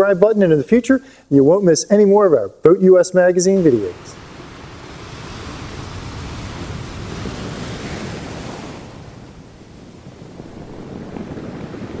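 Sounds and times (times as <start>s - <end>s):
wind: 0.0s - 12.0s
waves washing: 3.3s - 12.0s.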